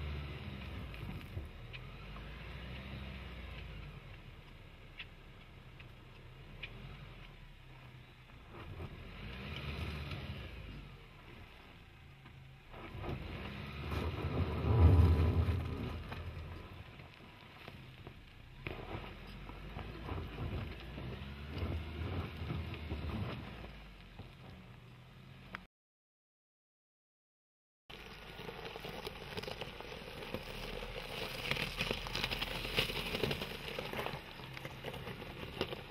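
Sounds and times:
tyres crunching on gravel: 0.0 - 25.6, 27.9 - 35.9
diesel engine at low revs: 0.0 - 25.7.

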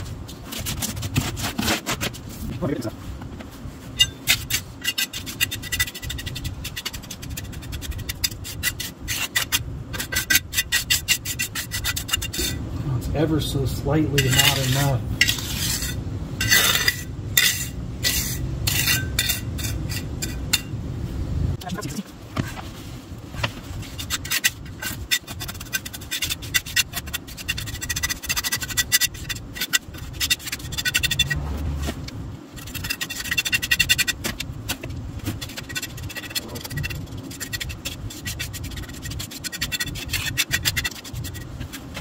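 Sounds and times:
trowel scraping wet concrete: 4.0 - 12.6, 14.1 - 20.4, 23.8 - 32.0, 32.6 - 42.0.

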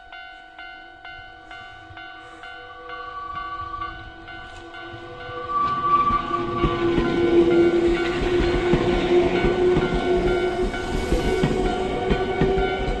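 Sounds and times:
level crossing bell ringing: 0.0 - 8.3
electric train rumble: 0.0 - 13.0.

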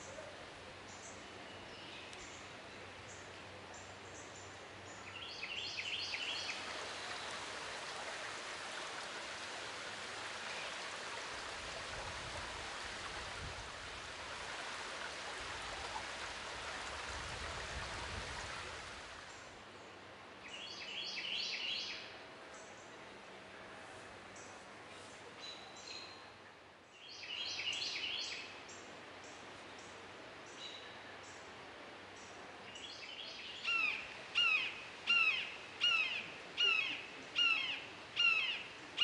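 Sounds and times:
rain pattering on water: 6.1 - 19.5.

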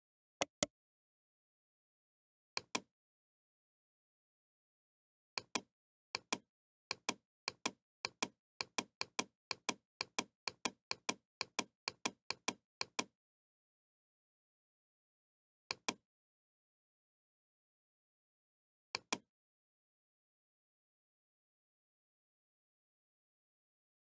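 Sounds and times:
computer mouse clicking: 0.4 - 0.7, 2.6 - 2.9, 5.4 - 13.1.

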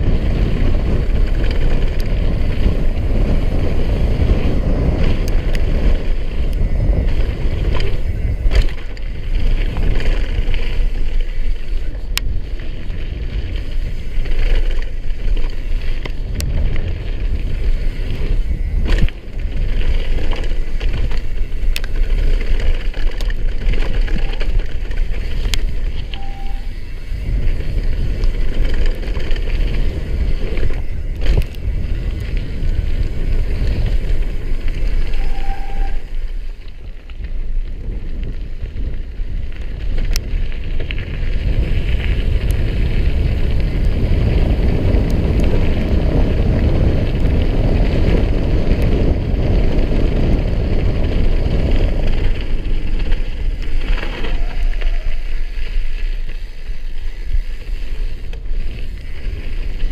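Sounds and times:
bike clicks and knocks: 0.0 - 59.9
bike tyres rolling on gravel: 0.0 - 59.9
wind rumble: 0.0 - 59.9
short squeaks: 26.0 - 27.0, 35.1 - 36.2.

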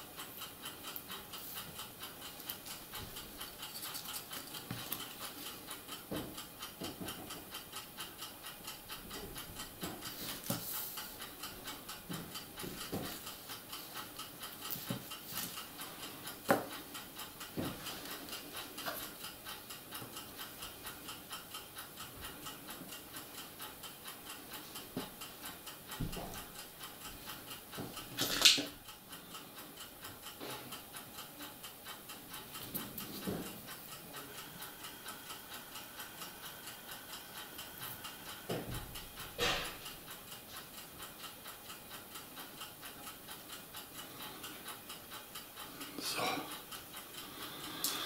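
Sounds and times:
steady fast ticking: 0.0 - 48.0.

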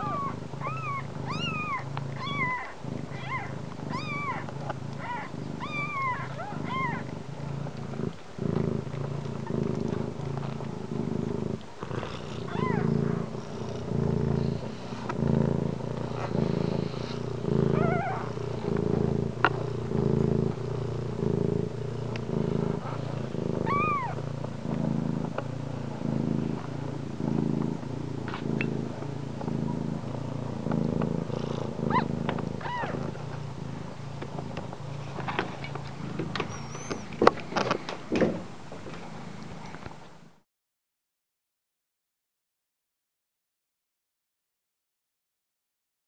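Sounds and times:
kittens mewing: 0.0 - 7.1, 23.6 - 24.2, 31.9 - 33.0
cat purring: 0.0 - 40.4.

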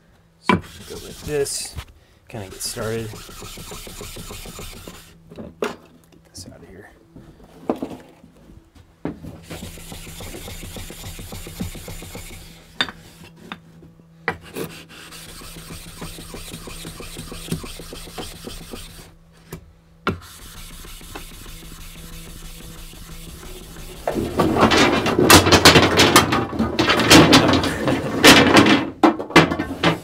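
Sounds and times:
stone scraping on whetstone: 0.5 - 1.7, 2.4 - 5.2, 9.6 - 13.3, 14.5 - 19.1, 20.2 - 25.2.

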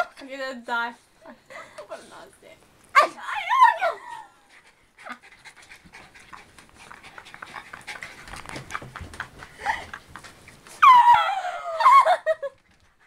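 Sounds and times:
small dog panting: 4.4 - 10.0.

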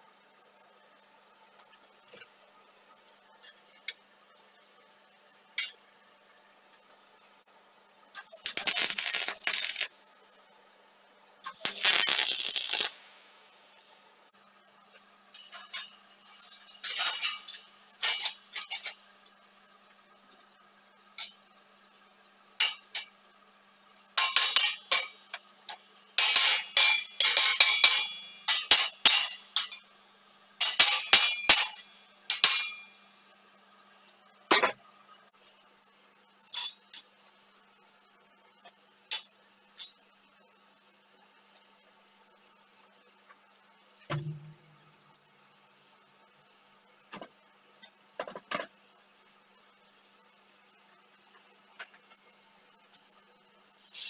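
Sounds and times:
welder crackling: 8.2 - 10.3, 11.5 - 14.0, 24.2 - 29.8, 30.6 - 32.8.

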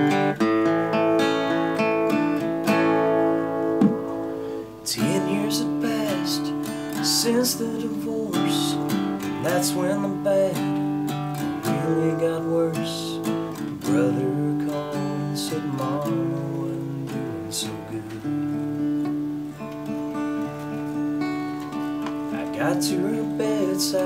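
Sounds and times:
acoustic guitar strumming and picking: 0.0 - 24.0.

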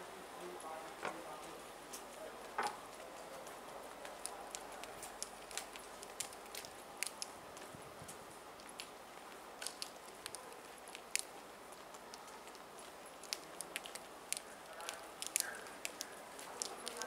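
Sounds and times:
sharp clicks: 4.0 - 9.0, 9.6 - 17.0.

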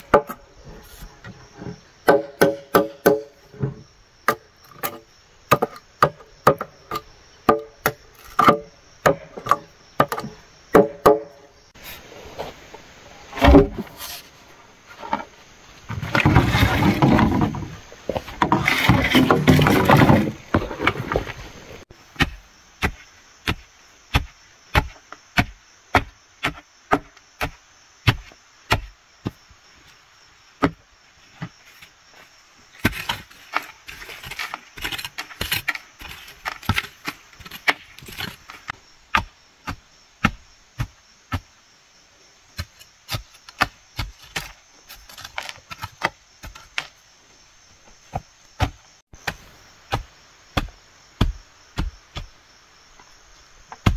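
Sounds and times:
insects chirring: 0.0 - 53.9
wooden pole thudding into earth: 13.3 - 14.0.

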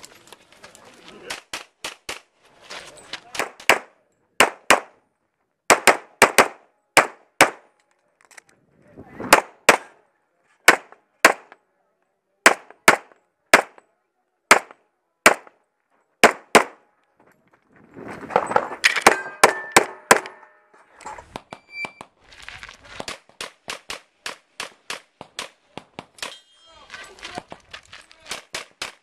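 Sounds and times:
pistol shots: 3.4 - 5.0, 5.7 - 7.7, 9.3 - 10.0, 10.7 - 11.6, 12.5 - 13.8, 14.5 - 15.5, 16.2 - 16.8
ringing metallic clangs: 18.8 - 21.9, 26.2 - 26.9.

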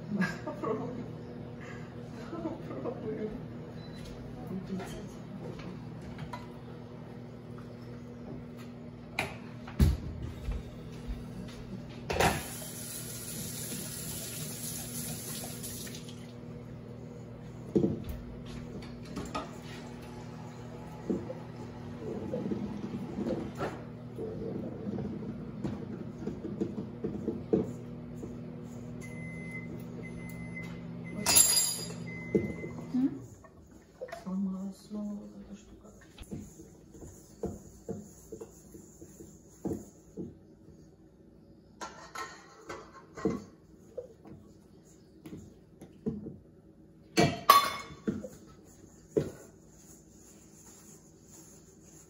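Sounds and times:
kitchen appliance humming: 0.0 - 37.9.

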